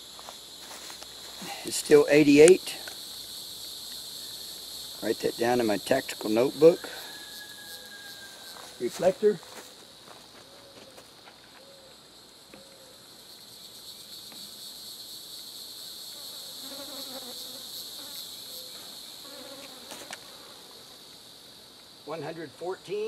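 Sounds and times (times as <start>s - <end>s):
high insect buzzing: 0.0s - 11.3s, 12.7s - 22.0s.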